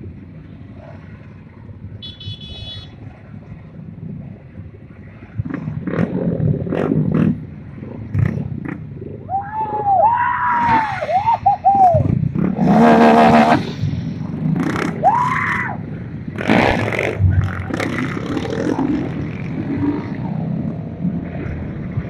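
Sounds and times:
mini bike engines revving: 10.6s - 20.7s.

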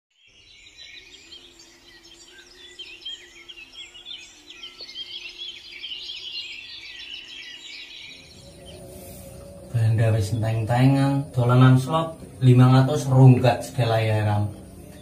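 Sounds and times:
small birds chirping: 0.1s - 15.0s
faint low hum: 8.0s - 15.0s.

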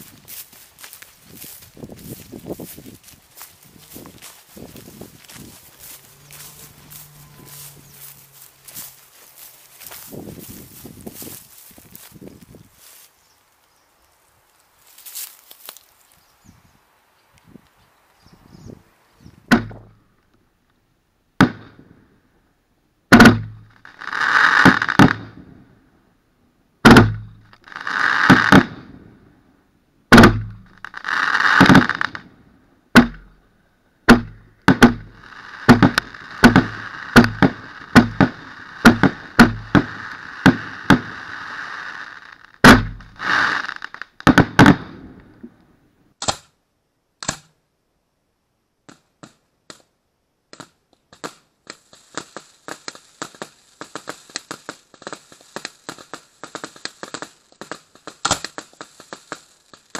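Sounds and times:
fireworks bangs: 23.1s - 25.6s, 26.8s - 29.2s, 30.1s - 32.3s, 34.1s - 45.5s
fireworks hissing: 23.7s - 25.2s, 27.6s - 28.7s, 30.6s - 32.2s, 35.0s - 44.0s.

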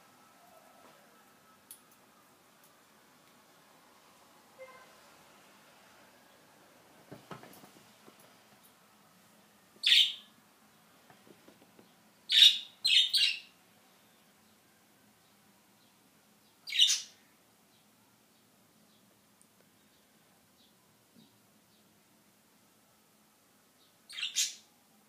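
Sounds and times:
faint knocks: 7.1s - 8.4s, 11.0s - 12.0s
budgerigars chirping: 9.8s - 10.3s, 12.3s - 13.5s, 16.7s - 17.2s, 24.1s - 24.6s.

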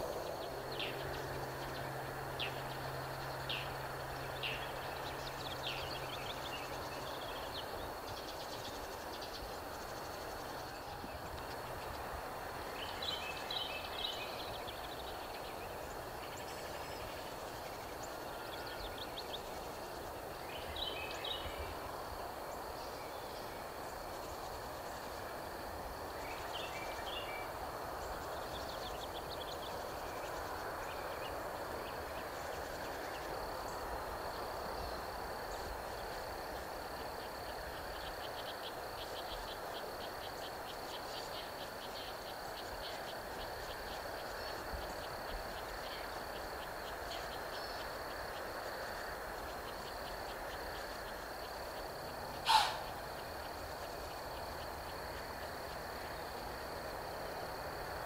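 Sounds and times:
distant traffic hum: 0.0s - 58.0s
insects chirring: 0.0s - 58.0s
short high calls: 52.4s - 53.0s.

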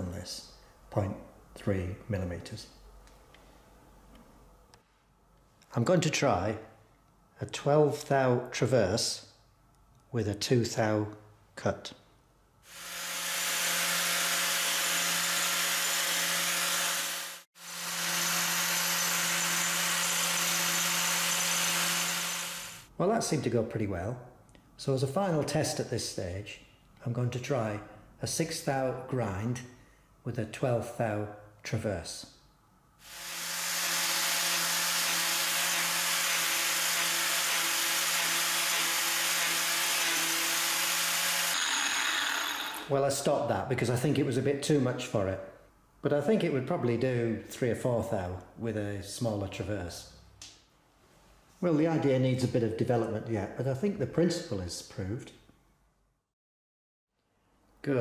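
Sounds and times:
angle grinder grinding steel: 12.7s - 22.9s, 33.1s - 43.0s.

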